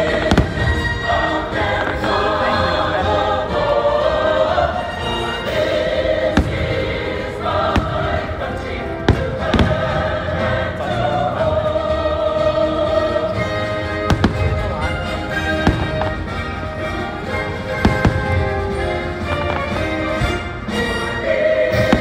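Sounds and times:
fireworks bursting with bangs: 0.0s - 2.4s, 6.1s - 10.9s, 13.7s - 20.6s, 21.7s - 22.0s
choir singing with music: 0.0s - 22.0s.

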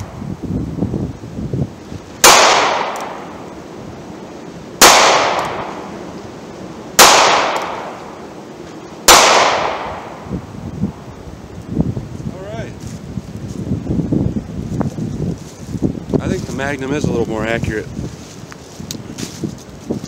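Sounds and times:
revolver gunshots: 2.2s - 3.4s, 4.8s - 5.9s, 6.9s - 8.2s, 9.0s - 10.2s.

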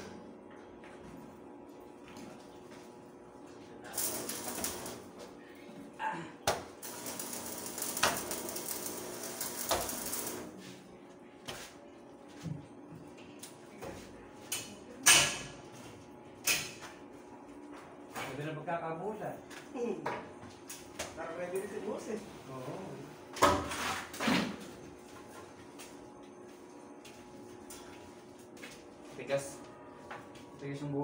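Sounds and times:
welding arc crackling: 3.9s - 5.2s, 6.7s - 10.6s.

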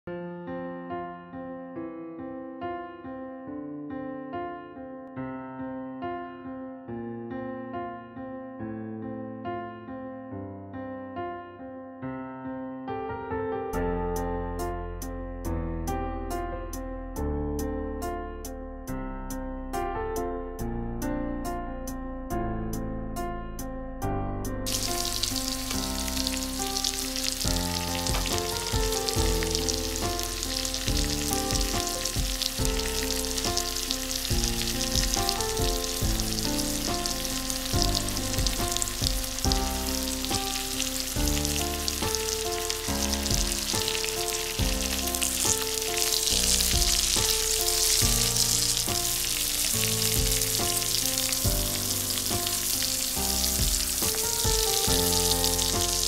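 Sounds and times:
soft background music: 13.7s - 56.0s
sausages sizzling in frying pan: 24.7s - 56.0s.

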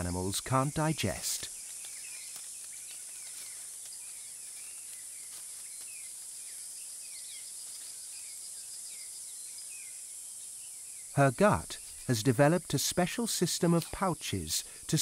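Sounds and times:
high-pitched insect hiss: 0.0s - 15.0s.

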